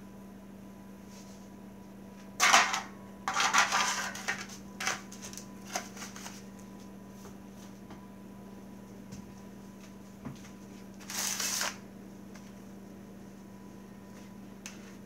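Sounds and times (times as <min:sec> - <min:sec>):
foil pans crinkling and knocking: 0:02.4 - 0:06.5.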